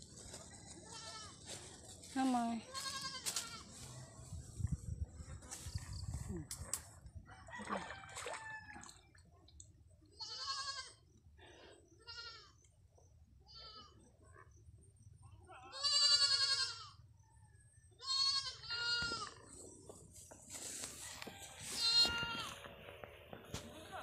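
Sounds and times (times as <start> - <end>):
goat bleating: 0.8 - 1.4, 2.7 - 3.7, 10.2 - 11.0, 12.0 - 12.5, 13.5 - 14.0, 15.7 - 17.0, 18.0 - 19.4, 21.8 - 22.6.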